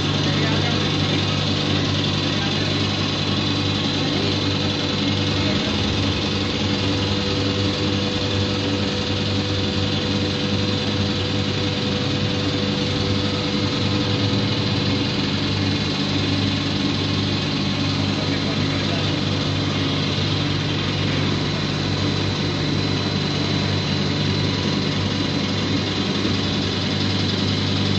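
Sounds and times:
constant machine tone: 0:00.0 - 0:27.9
steady machine hum: 0:00.0 - 0:27.9.

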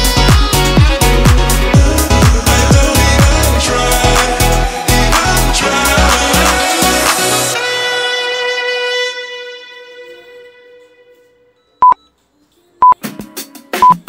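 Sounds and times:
music with drum hits: 0:00.0 - 0:03.5, 0:12.8 - 0:14.0
background music held chord: 0:00.0 - 0:13.6
short electronic beeps: 0:11.8 - 0:12.1.

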